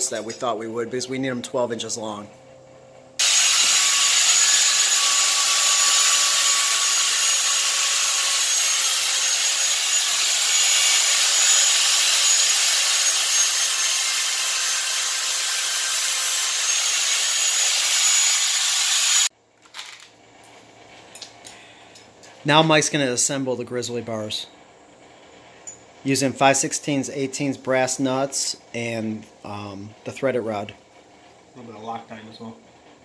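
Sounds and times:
angle grinder cutting metal rod: 3.2 - 19.3.

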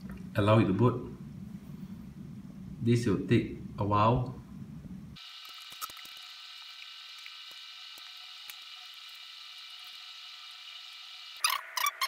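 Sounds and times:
laptop hiss and high whine: 0.0 - 12.0.

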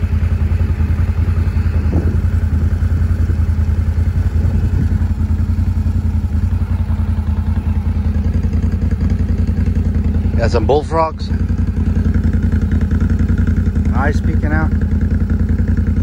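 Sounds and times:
atv engine running: 0.0 - 16.0.

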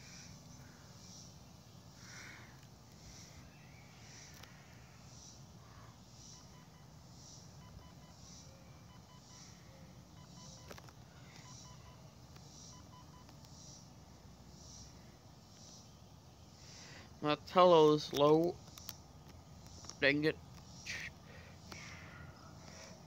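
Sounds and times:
short electronic tones: 6.3 - 13.3
soft high beeps: 6.3 - 13.3.

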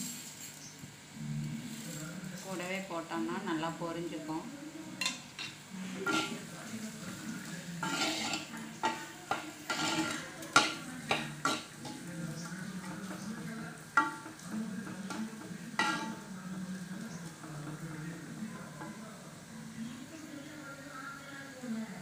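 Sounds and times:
onions and rice sizzling in oil: 0.0 - 22.0
metal spoon scraping clay pot: 6.0 - 6.4, 7.8 - 12.1, 15.8 - 16.2.

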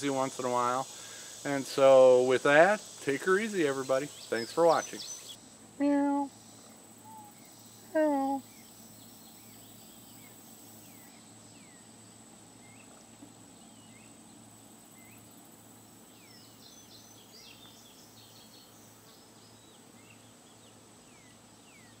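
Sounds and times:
high insect drone: 0.0 - 22.0
bird chirping: 3.2 - 5.4, 6.6 - 15.4, 16.1 - 22.0.

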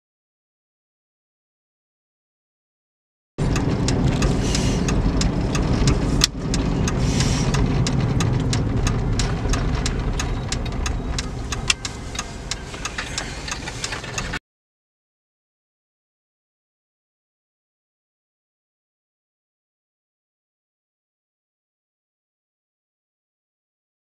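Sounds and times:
car road noise rumble: 3.4 - 14.4
sharp clicks and knocks: 3.4 - 14.4.

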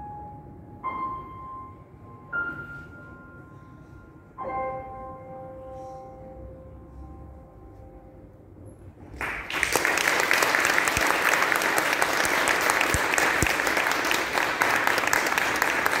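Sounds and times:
audience applauding: 9.2 - 16.0.

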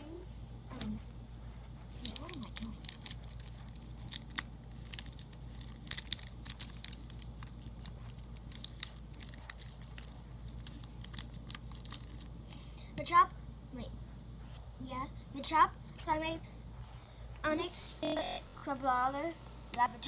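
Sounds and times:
plastic sleeves crinkling: 1.9 - 12.3.

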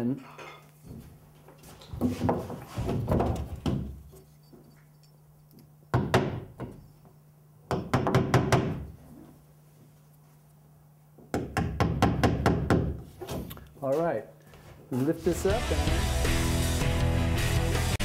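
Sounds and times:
hammer striking nails: 5.9 - 6.8, 7.7 - 8.9, 11.3 - 13.0.

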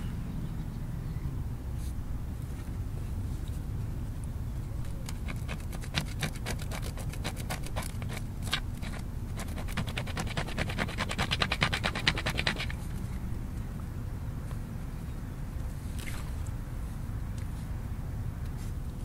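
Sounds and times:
stone flake sawing cord: 5.0 - 12.9.

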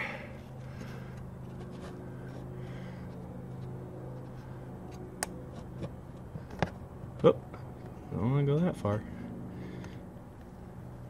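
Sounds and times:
low hum: 0.0 - 8.2.

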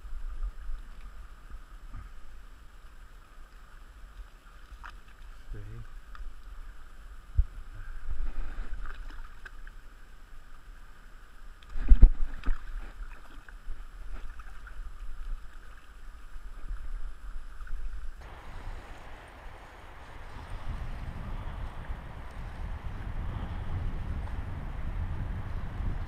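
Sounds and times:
river water running over stones: 0.0 - 22.4
wind rumble on microphone: 7.2 - 9.3, 11.7 - 26.0
water splashes and knocks: 11.7 - 15.9.

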